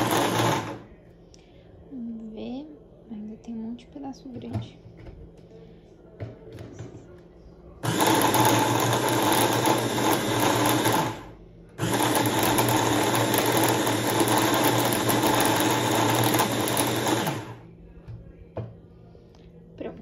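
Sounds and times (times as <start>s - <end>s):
hand blender motor chopping: 7.8s - 11.2s, 11.8s - 17.6s.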